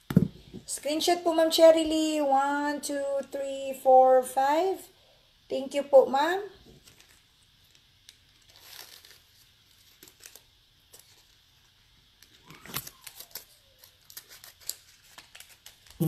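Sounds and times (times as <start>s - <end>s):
jewelry packaging rustling: 6.7s - 16.0s.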